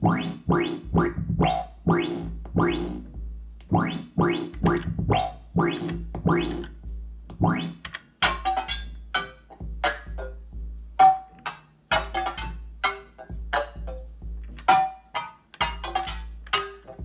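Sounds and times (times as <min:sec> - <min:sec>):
steady low synth bass: 0:00.0 - 0:07.7
sequenced synth notes: 0:00.0 - 0:07.9.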